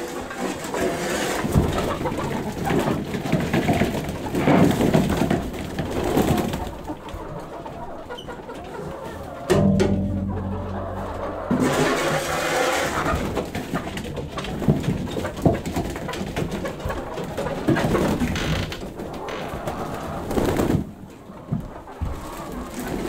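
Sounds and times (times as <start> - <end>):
hens clucking: 0.0 - 23.0
scraping and knocking: 9.5 - 18.4.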